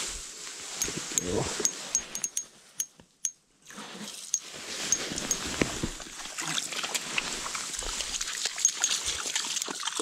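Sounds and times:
slush and meltwater trickling: 3.6 - 10.0.

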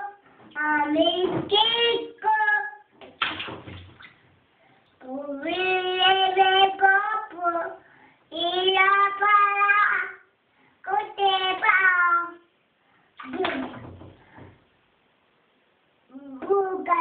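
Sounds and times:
toddler singing: 0.0 - 2.9, 5.0 - 12.5, 16.1 - 17.0
bath water splash: 3.0 - 4.2, 13.2 - 14.6.

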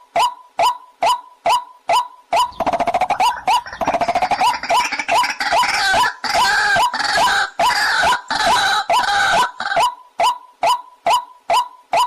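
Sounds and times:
bird harsh croaking calls: 2.4 - 10.0.

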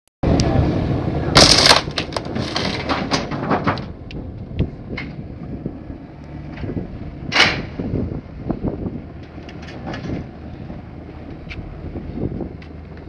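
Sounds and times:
excavator engine rumble: 0.2 - 13.0
loud crash of scrap metal: 1.4 - 4.0
metal clanks and knocks: 1.4 - 5.2, 6.5 - 7.8, 9.2 - 10.4.

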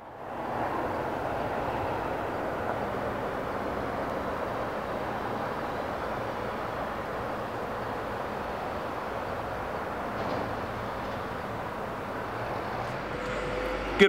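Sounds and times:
distant engines rumbling: 0.0 - 14.0
low hum: 12.1 - 14.0.

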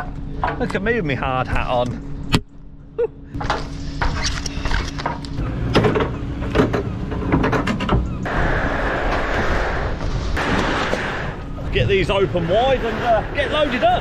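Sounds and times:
steady low rumble: 8.1 - 14.0
steady rushing noise: 8.2 - 14.0.

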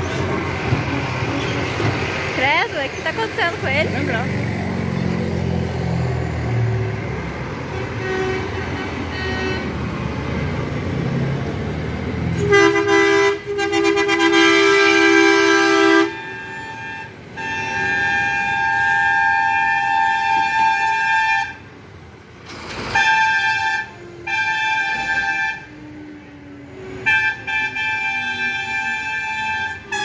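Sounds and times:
truck diesel engine rumbling: 0.0 - 30.0
higher-pitched truck horn: 7.0 - 9.9, 12.3 - 21.7, 22.6 - 30.0
truck horn blaring: 7.6 - 9.9, 12.3 - 21.7, 22.8 - 30.0.

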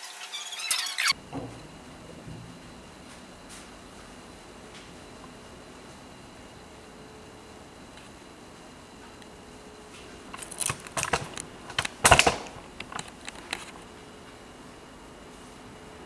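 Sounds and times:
faint steady hum: 1.1 - 16.0
camera handling clicks and rustles: 10.3 - 13.8.

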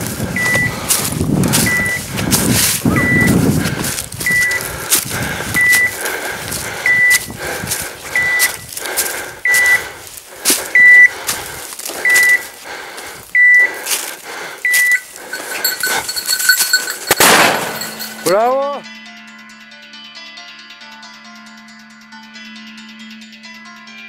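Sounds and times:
footsteps through dry leaves: 0.0 - 18.3
short high electronic beeps: 1.7 - 2.0, 2.9 - 3.3.

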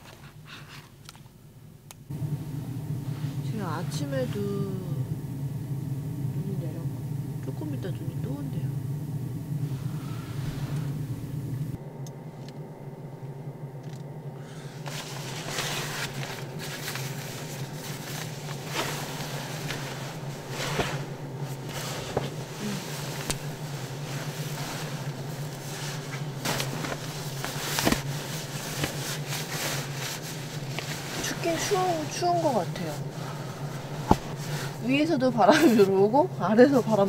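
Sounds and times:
steady low hum: 0.0 - 37.0
sleeping bag rustling: 14.5 - 37.0.

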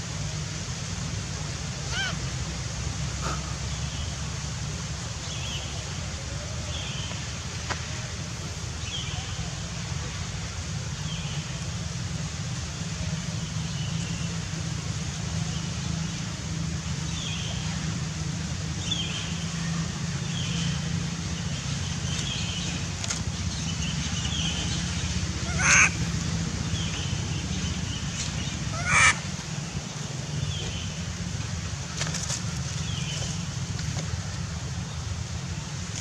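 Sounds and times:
low outdoor rumble: 0.0 - 36.0
monkey cries: 1.8 - 2.2, 25.4 - 26.0, 28.7 - 29.2
monkeys chirping: 25.4 - 26.1, 28.7 - 29.2.

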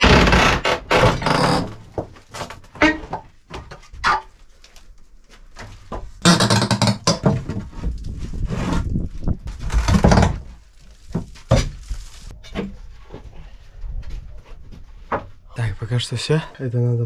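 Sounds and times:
wood creaking and splintering: 0.0 - 15.3.

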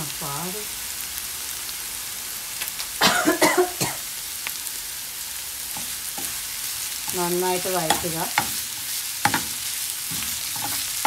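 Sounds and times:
onions sizzling in a frying pan: 0.0 - 11.0
steel ladle scraping a pan: 7.8 - 11.0.

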